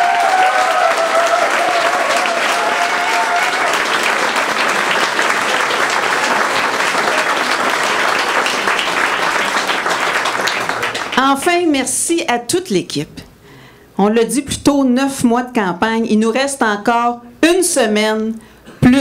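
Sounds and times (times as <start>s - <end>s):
crowd cheering: 0.0s - 11.2s
audience applauding: 0.0s - 11.4s.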